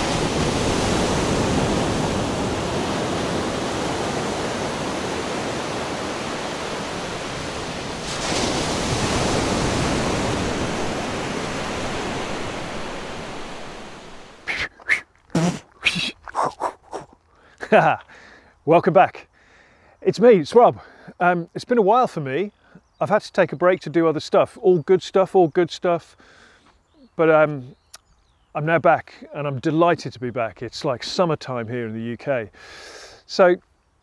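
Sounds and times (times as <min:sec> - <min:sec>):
waves breaking and churning: 0:00.0 - 0:17.0.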